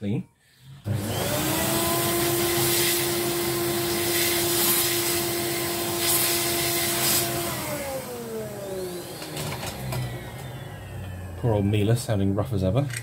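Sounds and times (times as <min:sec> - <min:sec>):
vacuum cleaner whining: 0:00.7 - 0:12.8
motor winding down: 0:00.9 - 0:12.4.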